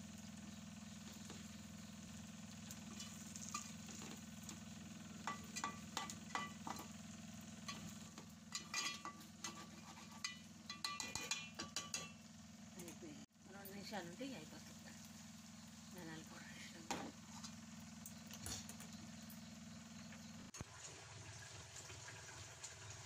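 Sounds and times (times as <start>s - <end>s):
food sizzling in pan: 0.0s - 13.0s, 13.6s - 23.0s
metal spatula scraping pan: 2.9s - 4.2s, 5.3s - 6.9s, 7.7s - 12.2s.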